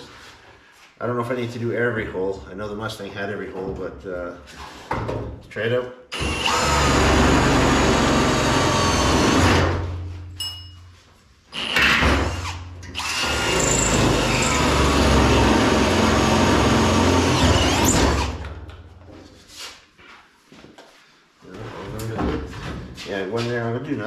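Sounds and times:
electric drill boring steel: 0:06.2 - 0:09.8, 0:11.5 - 0:18.5.

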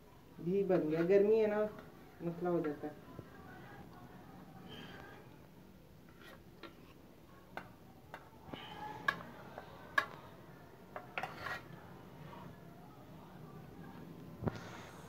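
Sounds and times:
knife scraping steel bowl: 0:06.1 - 0:07.0, 0:11.0 - 0:11.8.

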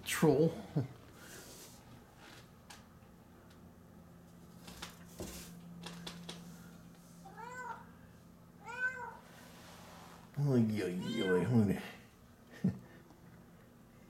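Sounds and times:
low steady hum: 0:00.0 - 0:14.0
cat meowing: 0:07.2 - 0:07.9, 0:08.6 - 0:09.3, 0:11.0 - 0:11.6.

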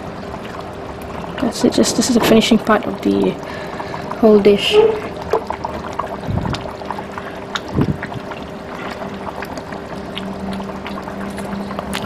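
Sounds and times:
gravy bubbling: 0:00.0 - 0:12.0
low hum: 0:03.3 - 0:12.0.

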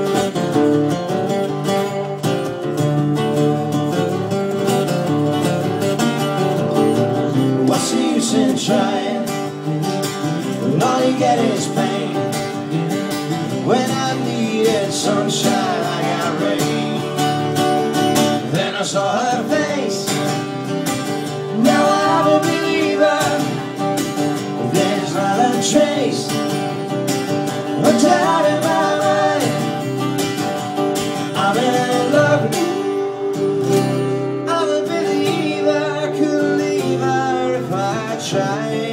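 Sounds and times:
acoustic guitars strummed: 0:00.0 - 0:38.9
man singing into a microphone: 0:07.6 - 0:09.7, 0:10.6 - 0:12.8, 0:13.4 - 0:17.6, 0:18.4 - 0:20.3, 0:21.4 - 0:23.8, 0:24.5 - 0:26.5, 0:27.8 - 0:29.8, 0:31.3 - 0:38.9.

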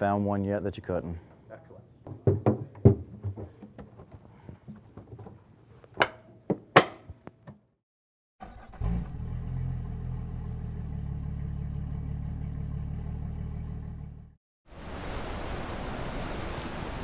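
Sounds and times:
sharp knocks: 0:02.1 - 0:05.4, 0:06.0 - 0:07.6
engine starting and running: 0:08.4 - 0:14.4.

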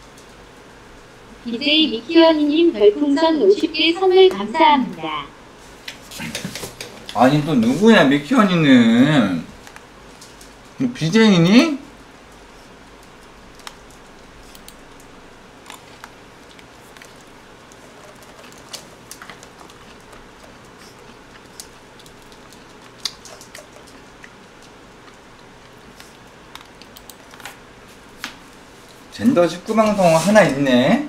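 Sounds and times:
steady low hiss: 0:00.0 - 0:18.0.

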